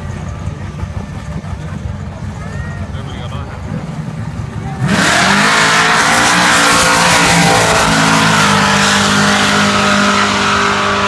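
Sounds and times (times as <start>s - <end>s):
race car engines at full throttle: 0.0s - 11.0s.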